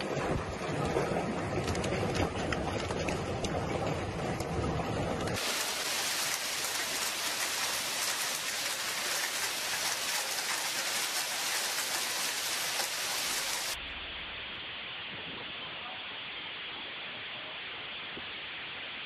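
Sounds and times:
hail and rain on pavement: 5.3s - 13.8s.

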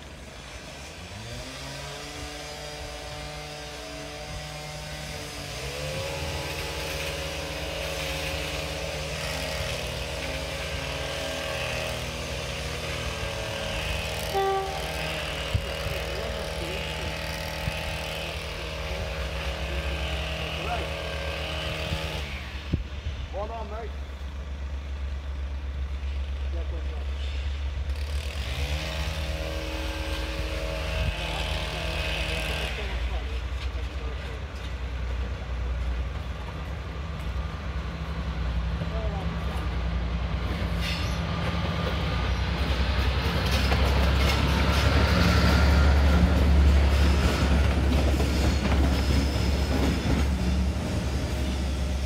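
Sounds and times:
diesel locomotive engines: 0.0s - 52.0s
locomotive horn: 13.9s - 15.8s.

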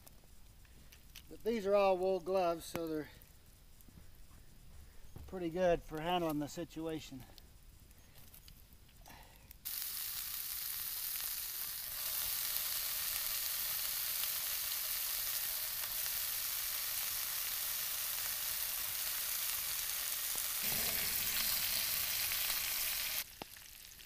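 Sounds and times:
bacon sizzling in a skillet: 9.6s - 24.0s.

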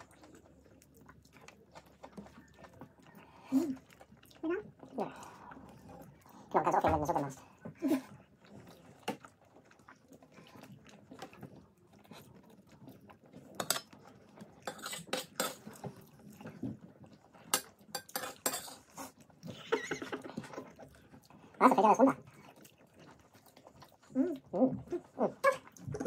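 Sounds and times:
people chewing: 0.0s - 26.0s
cutlery clinking on dishes: 13.6s - 14.0s, 14.6s - 15.8s, 17.5s - 18.9s.

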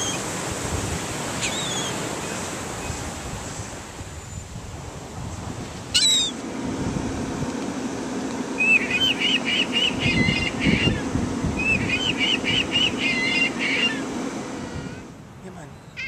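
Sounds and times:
steady low hum: 0.0s - 16.0s
recorded gull call: 1.4s - 2.0s, 5.9s - 6.4s, 8.6s - 15.1s.

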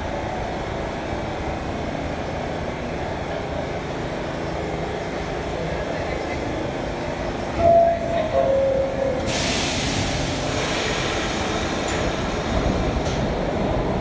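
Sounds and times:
train low rumble: 0.0s - 14.0s
hiss of air: 9.2s - 13.2s.

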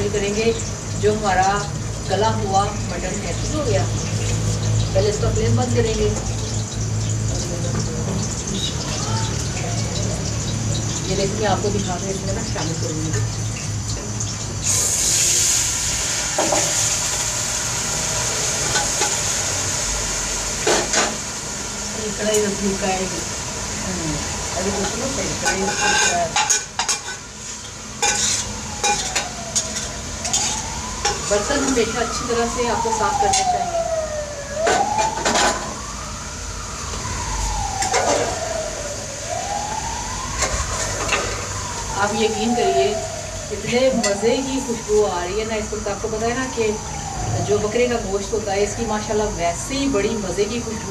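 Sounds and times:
meat sizzling in hot oil: 0.0s - 50.9s
siren wailing: 8.7s - 13.0s, 16.4s - 27.2s, 27.8s - 50.9s.

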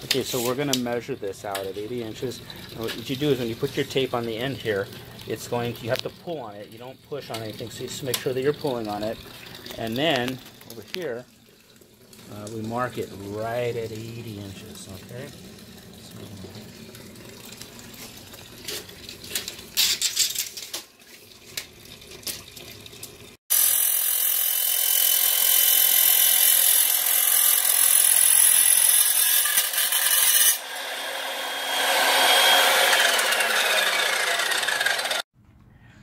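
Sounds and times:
miter saw cutting: 23.5s - 35.3s.

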